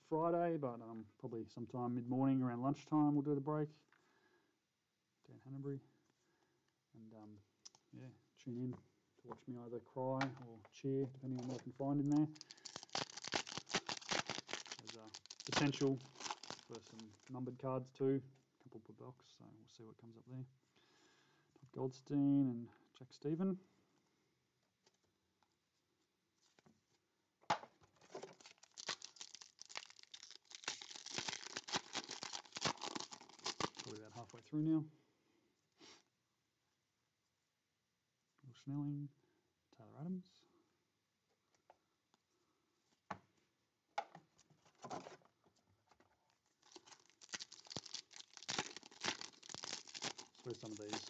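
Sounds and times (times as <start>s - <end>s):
foil wrapper crackling: 11.3s - 17.3s, 28.2s - 34.3s, 46.4s - 51.0s
wrapper crinkling and tearing: 11.3s - 17.3s, 28.1s - 34.4s, 46.3s - 51.0s.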